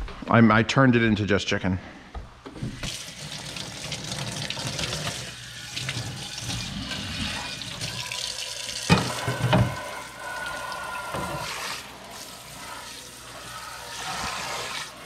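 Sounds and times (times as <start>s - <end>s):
tap running into sink: 8.8s - 9.9s.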